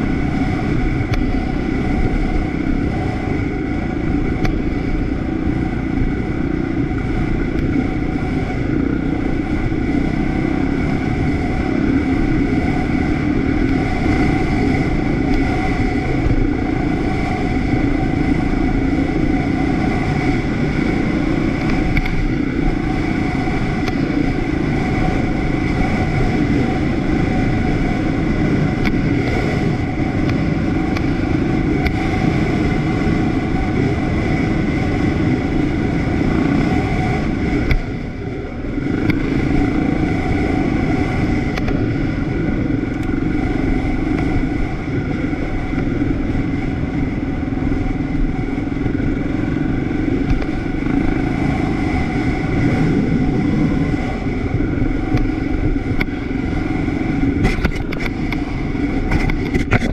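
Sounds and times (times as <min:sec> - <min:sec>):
vehicle engine running: 0:00.0 - 0:59.9.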